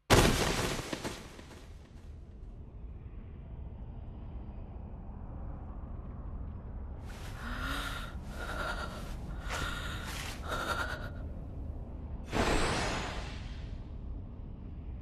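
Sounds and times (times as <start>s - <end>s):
steady low rumble: 1.7s - 15.0s
woman panting: 7.2s - 11.3s.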